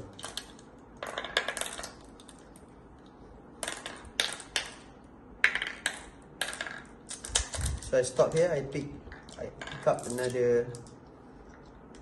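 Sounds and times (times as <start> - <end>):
glass marbles clicking: 0.1 - 2.4, 3.6 - 7.8, 9.1 - 11.0.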